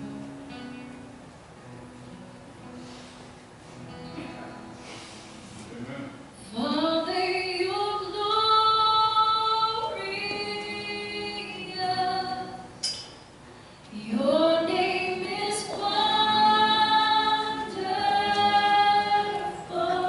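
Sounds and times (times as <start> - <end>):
worship singers singing slowly: 6.5 - 12.7, 13.9 - 20.0.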